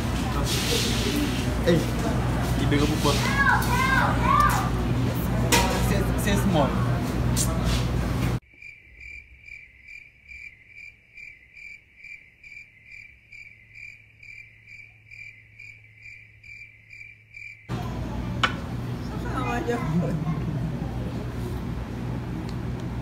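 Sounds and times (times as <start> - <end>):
loud chatter: 0.0 - 8.4, 17.7 - 22.4
crickets chirping: 8.4 - 17.7.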